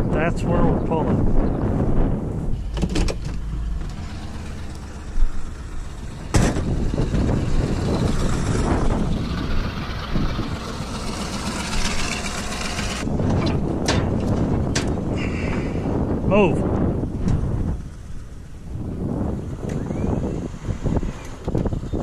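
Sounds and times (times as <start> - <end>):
truck engine idling: 1.6 - 15.2.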